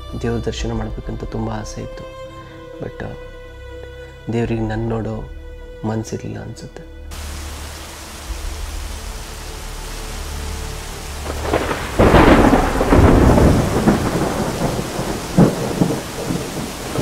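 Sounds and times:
heavy rain: 7.1 - 17.0.

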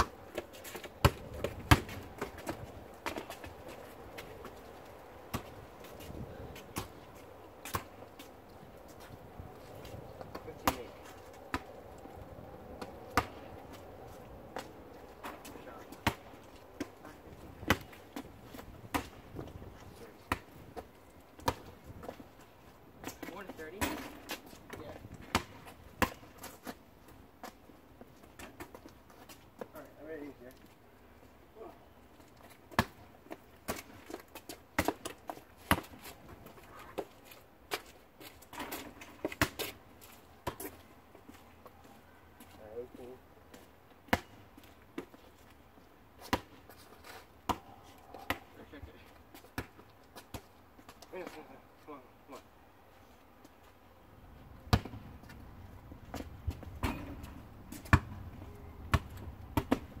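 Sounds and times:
basketball bouncing on asphalt: 0.0 - 3.6, 5.2 - 5.7, 6.6 - 8.0, 10.2 - 12.2, 12.8 - 13.9, 14.6 - 22.4, 23.0 - 26.8, 32.7 - 37.1, 38.5 - 39.8, 40.4 - 40.8, 44.0 - 45.2, 46.2 - 46.7, 47.4 - 48.6, 49.3 - 51.0, 54.6 - 55.4, 56.0 - 60.0.

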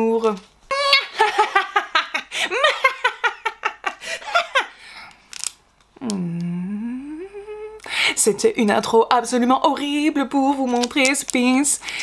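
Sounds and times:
woman moaning ghostly oooo: 0.7 - 1.2, 6.0 - 7.8
woman laughing: 0.7 - 4.8.

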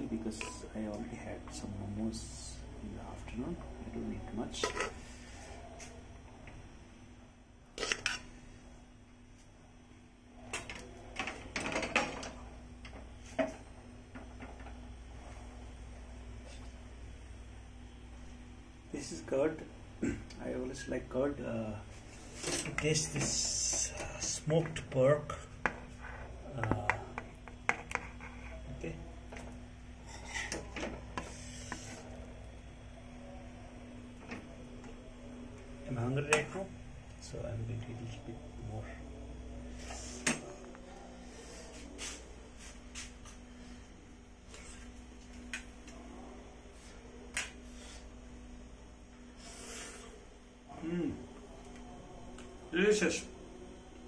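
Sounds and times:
steady low hum: 0.0 - 54.0
spoon knocking and scraping a pot: 26.6 - 28.6.

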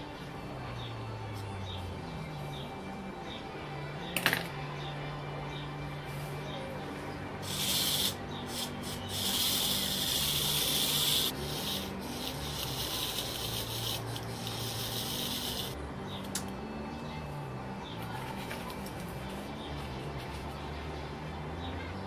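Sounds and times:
fingers rubbing on metal plates: 7.4 - 15.8.

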